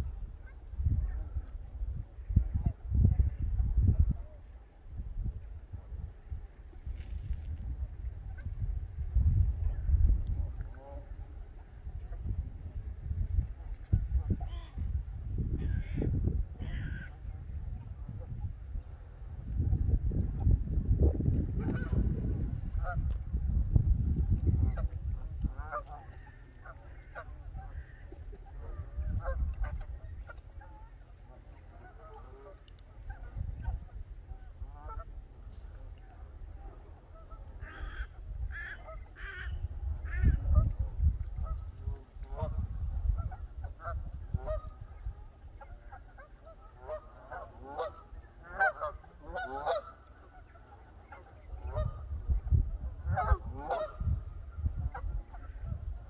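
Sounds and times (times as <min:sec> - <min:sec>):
geese honking: 0:15.6 - 0:17.2, 0:24.6 - 0:35.2, 0:36.0 - 0:52.2, 0:53.0 - 0:56.0.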